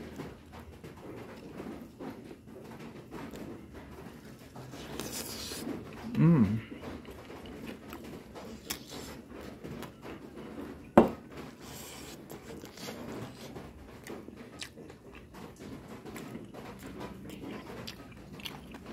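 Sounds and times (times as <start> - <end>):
crunchy chewing: 4.2 - 10.7, 11.4 - 18.9.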